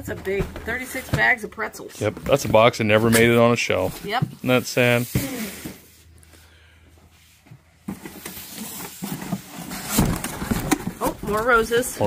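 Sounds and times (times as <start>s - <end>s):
cardboard flaps rustling: 7.8s - 12.0s.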